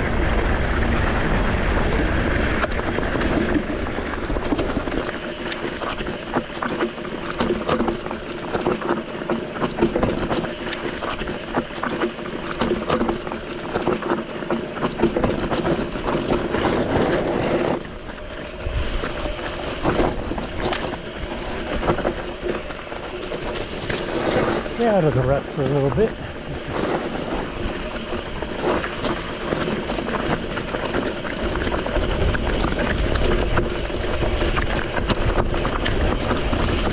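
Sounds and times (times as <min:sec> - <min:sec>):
bike tyres grinding over gravel: 0:00.0 - 0:36.9
wind buffeting microphone: 0:00.0 - 0:36.9
bike knocks and rattles: 0:02.6 - 0:18.4.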